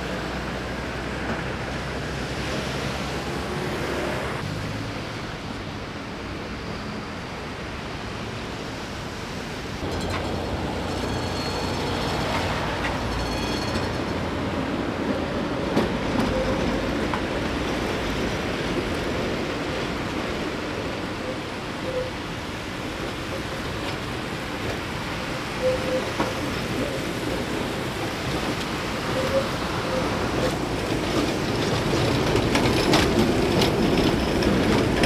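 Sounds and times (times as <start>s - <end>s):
tram wheels rumbling on rails: 0.0s - 35.0s
wheel squeals: 9.8s - 14.4s, 16.1s - 17.0s, 21.2s - 22.2s, 25.5s - 27.3s, 28.8s - 35.0s.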